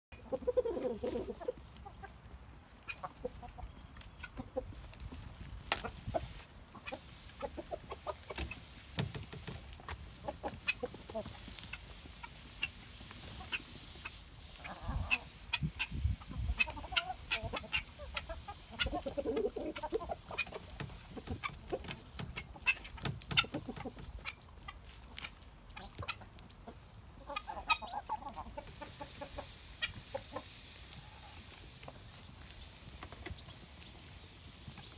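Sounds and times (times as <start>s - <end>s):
hens clucking: 0.1s - 34.9s
beaks and feet rustling litter: 0.2s - 34.9s.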